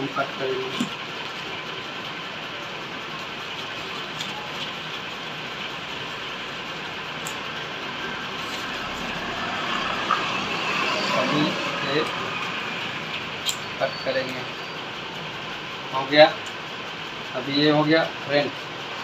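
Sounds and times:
steady rushing background noise: 0.0 - 19.0
scissors cutting paper: 3.6 - 4.8.

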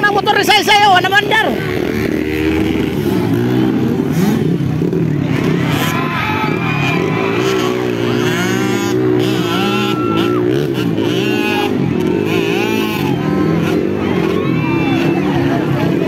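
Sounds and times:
dirt bike engine revving: 0.0 - 16.0.

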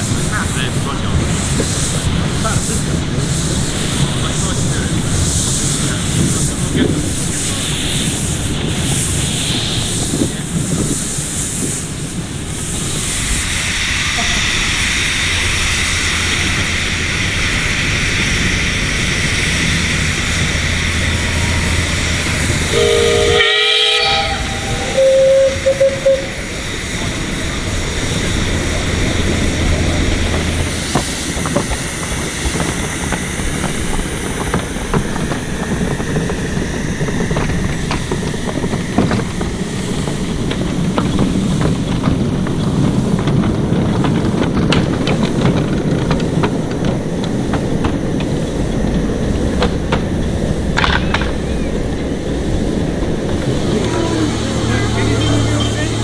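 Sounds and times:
hiss of steam: 0.0 - 41.9
train wheels clicking: 0.0 - 56.0
steam whistle: 22.6 - 26.7.

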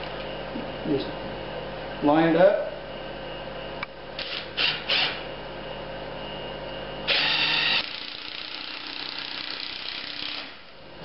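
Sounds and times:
cordless drill driving screw into wood: 4.2 - 5.2, 7.1 - 10.6.

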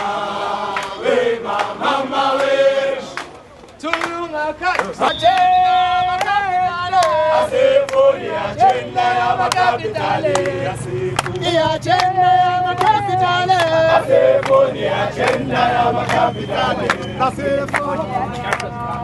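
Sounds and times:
crowd singing: 0.0 - 19.0.

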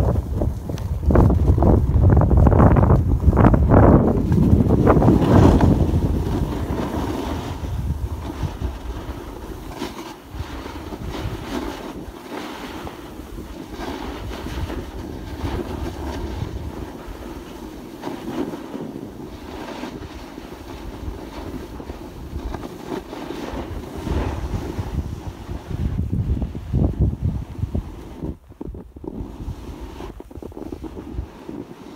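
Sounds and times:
wind buffeting microphone: 0.0 - 17.7, 19.0 - 31.9.

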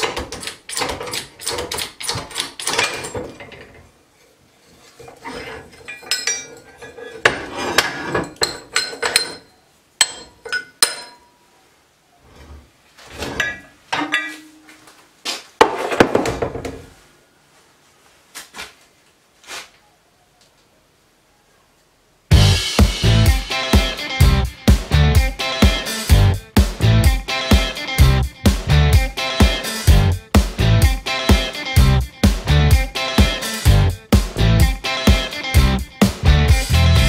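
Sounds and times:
metal parts clanking: 0.0 - 3.9, 4.8 - 11.3.

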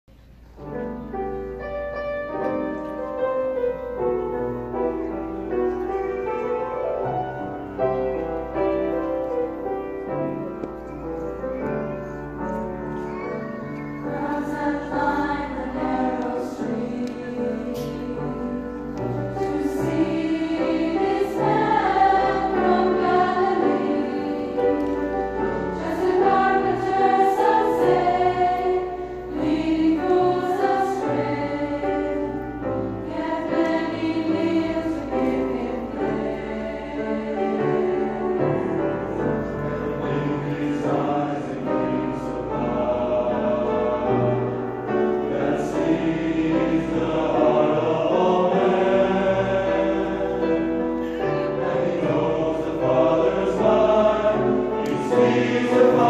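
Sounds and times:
mixed choir singing: 12.9 - 56.0.

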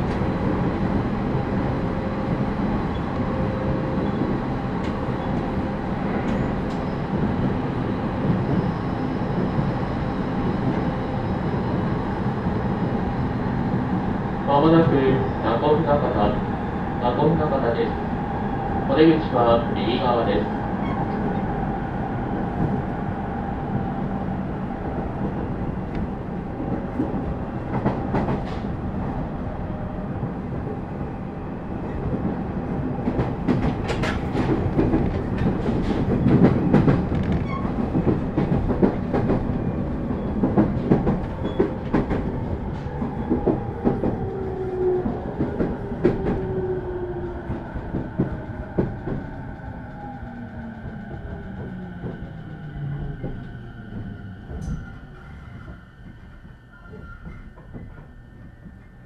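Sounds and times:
train running rumble: 0.0 - 59.0.

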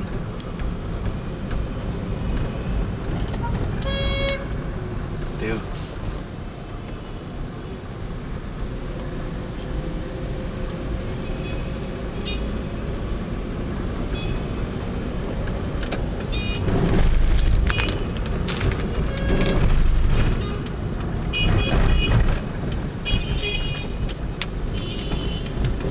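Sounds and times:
car engine and road rumble: 0.0 - 25.9.

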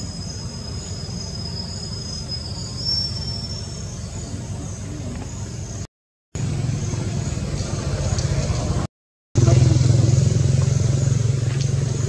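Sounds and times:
insect pulsing high trill: 0.0 - 4.3
insect high whine: 0.0 - 8.2.

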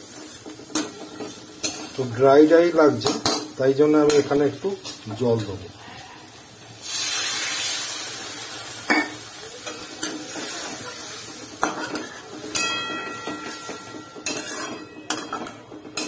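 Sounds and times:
water hissing in hot pan: 0.0 - 12.6
metal spatula scraping pan: 11.6 - 16.0.

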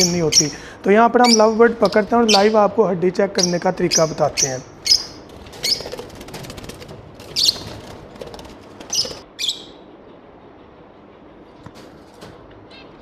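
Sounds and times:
lovebirds squawking: 0.0 - 6.1, 7.2 - 7.9, 8.8 - 9.8
cage wire rattling: 5.2 - 9.2, 11.6 - 13.0
wing flapping: 5.2 - 9.3.

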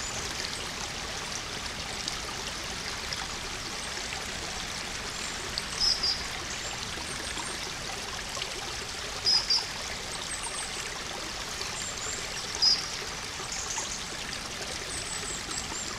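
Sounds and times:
stream running over stones: 0.0 - 15.9.

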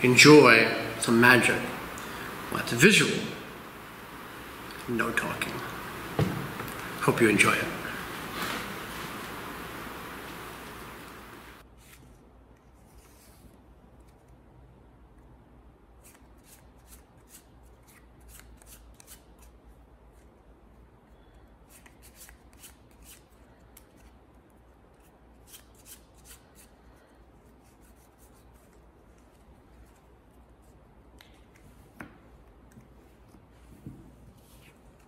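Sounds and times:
low steady hum: 0.0 - 11.6.

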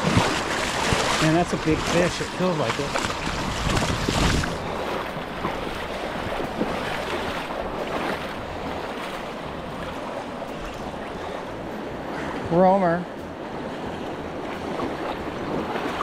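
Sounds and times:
wind buffeting microphone: 0.0 - 12.6
river current rushing: 0.0 - 16.0.

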